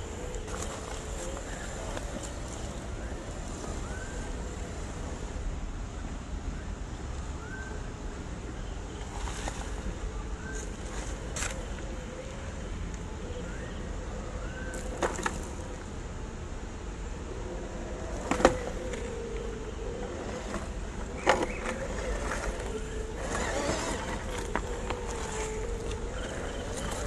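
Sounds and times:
small electric motor whining: 0:18.4 - 0:27.0.

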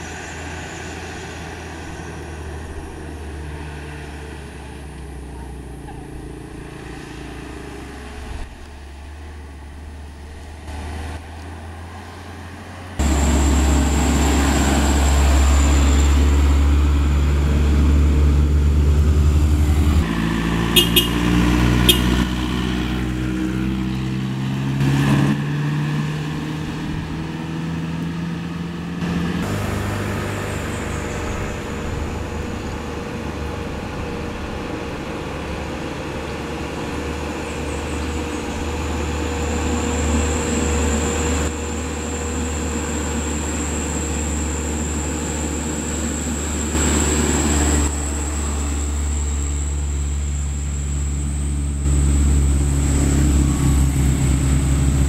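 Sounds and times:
truck engines labouring uphill: 0:00.0 - 0:55.0.

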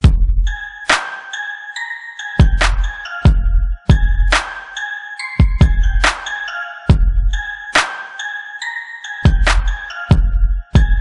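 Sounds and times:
electronic beat with kick drums: 0:00.0 - 0:01.2, 0:02.4 - 0:04.8, 0:05.4 - 0:08.0, 0:09.2 - 0:11.0
bell-like synth notes: 0:00.4 - 0:11.0.

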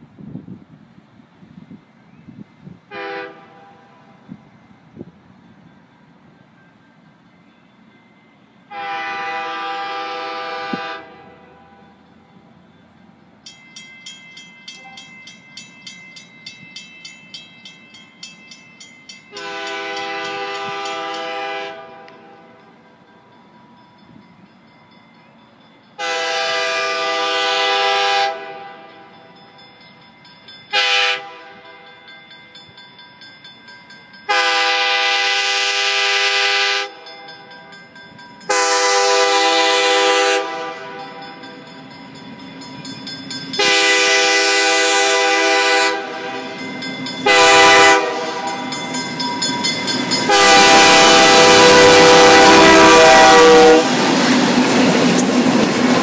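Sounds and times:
locomotive engine and wheel rumble: 0:00.0 - 0:27.7
locomotive air horn blasts: 0:02.9 - 0:04.2, 0:08.7 - 0:11.9, 0:19.3 - 0:22.5, 0:26.0 - 0:29.0, 0:30.7 - 0:31.8, 0:34.3 - 0:37.0, 0:38.5 - 0:41.2, 0:43.6 - 0:46.6, 0:47.2 - 0:48.7, 0:50.3 - 0:54.0.

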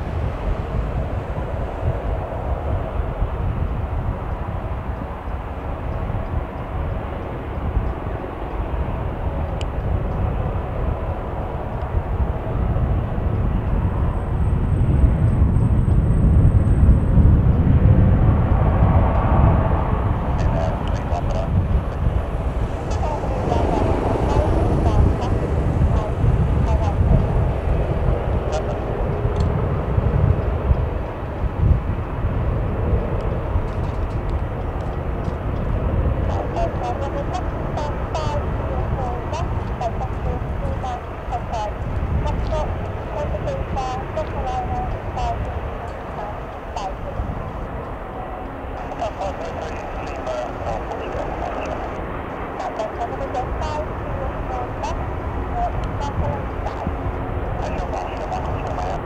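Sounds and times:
helicopter hovering: 0:19.4 - 0:59.0.

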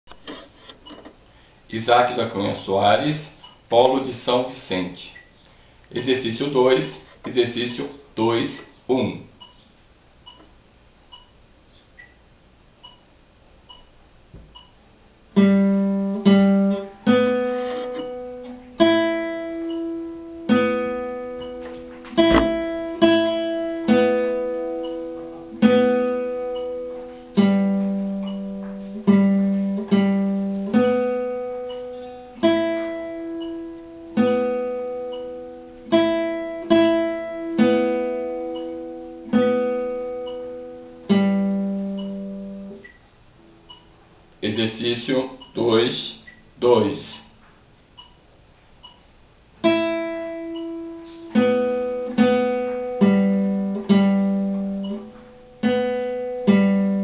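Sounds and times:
nylon-string guitar fingerstyle: 0:15.4 - 0:42.9, 0:49.6 - 0:57.0.

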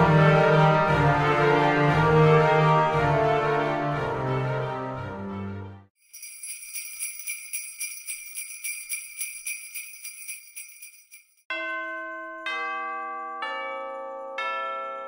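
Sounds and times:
jingle bells shaken: 0:06.0 - 0:12.6
ringing bell-like music notes: 0:06.0 - 0:15.0.

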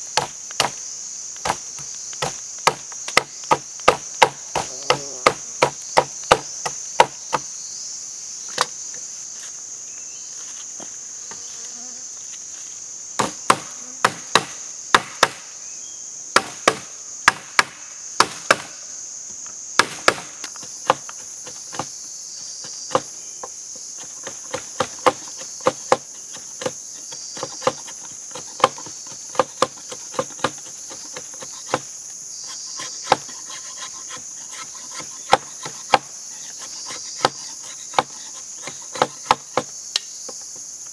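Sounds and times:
insects droning: 0:00.0 - 0:40.9
machete chopping bamboo: 0:00.1 - 0:00.8, 0:01.4 - 0:07.5, 0:13.2 - 0:15.4, 0:16.4 - 0:18.8, 0:19.8 - 0:21.9, 0:22.6 - 0:23.1, 0:24.0 - 0:26.8, 0:27.4 - 0:31.9, 0:32.8 - 0:40.1.

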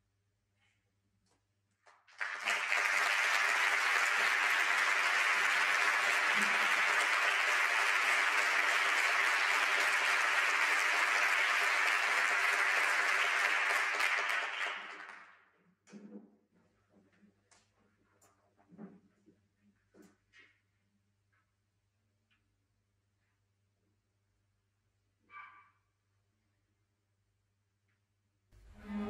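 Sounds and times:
audience applauding: 0:02.1 - 0:15.4.

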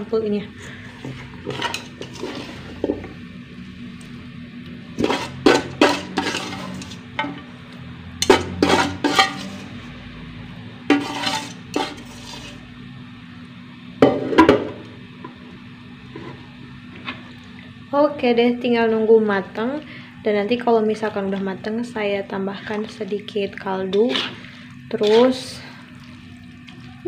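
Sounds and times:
metal spoon scraping a wok: 0:01.0 - 0:03.0, 0:05.0 - 0:07.2, 0:08.2 - 0:09.9, 0:10.9 - 0:12.6, 0:23.9 - 0:25.6.

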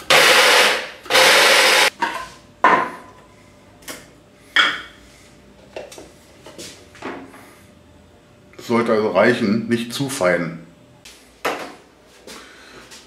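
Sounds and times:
spice grinder blade whirring: 0:00.0 - 0:01.9.

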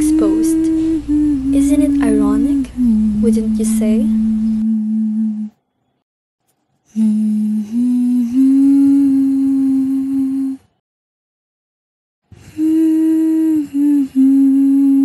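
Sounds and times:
person humming held notes: 0:00.0 - 0:05.6, 0:06.9 - 0:10.7, 0:12.5 - 0:15.0.

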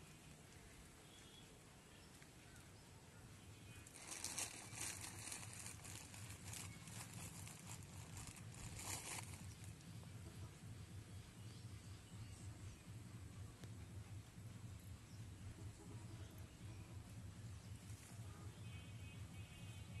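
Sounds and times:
faint low hum: 0:00.0 - 0:20.0
plastic bag rustling: 0:03.8 - 0:09.8.

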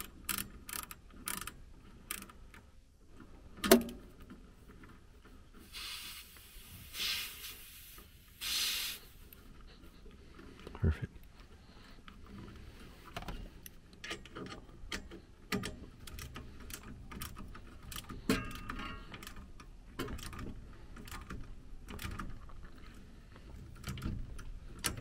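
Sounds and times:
hands handling wires and connectors: 0:09.3 - 0:25.0.

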